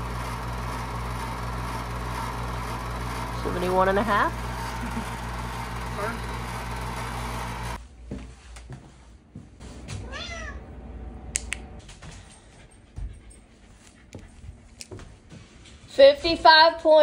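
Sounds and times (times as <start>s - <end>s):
cat meowing: 10.1s - 10.7s.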